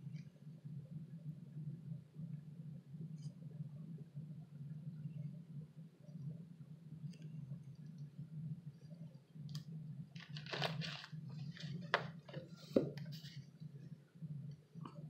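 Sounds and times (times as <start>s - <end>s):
steady low hum: 0.0s - 15.0s
rustling and crackling: 10.1s - 13.7s.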